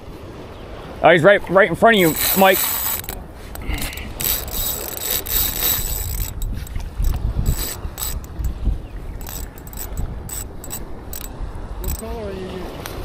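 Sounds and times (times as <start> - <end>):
fishing reel whirring and clicking: 2.0 - 8.6, 9.2 - 12.1.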